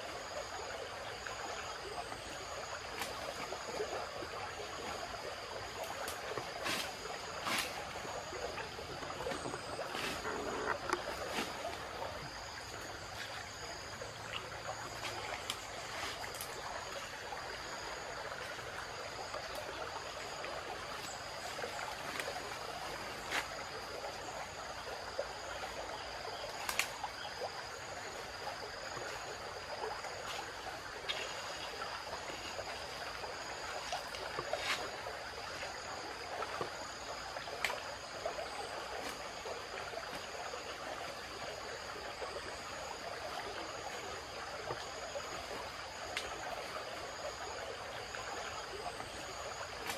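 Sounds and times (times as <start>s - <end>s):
flowing river water: 0.0s - 49.9s
insects droning: 0.0s - 49.9s.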